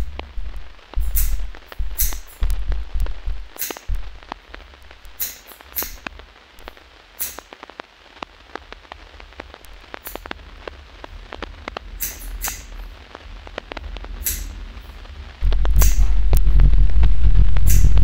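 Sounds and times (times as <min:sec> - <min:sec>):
faint crackling clicks: 0:00.0 - 0:18.0
steady low hum: 0:00.0 - 0:18.0
scissors snipping hair: 0:02.0 - 0:02.4, 0:15.8 - 0:16.0.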